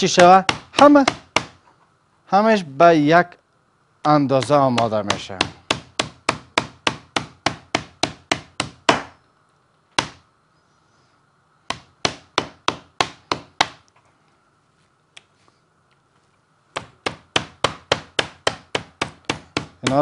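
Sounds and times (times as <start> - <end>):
meat mallet pounding steak: 0.1 - 1.5, 4.4 - 9.1, 16.8 - 20.0.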